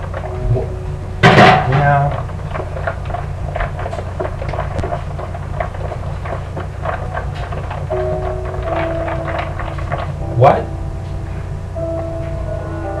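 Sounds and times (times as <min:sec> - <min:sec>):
kitchen clatter: 0:00.0 - 0:10.2
steady low hum: 0:00.0 - 0:13.0.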